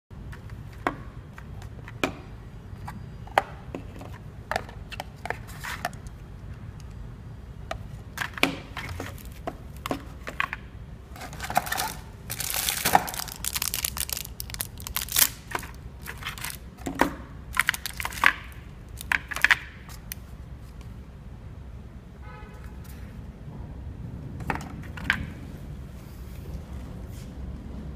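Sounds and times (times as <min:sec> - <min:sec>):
low steady hum: 0:00.1 - 0:27.9
plastic crinkling: 0:11.2 - 0:16.7, 0:17.5 - 0:20.2
packaging clicks and taps: 0:11.4 - 0:20.2.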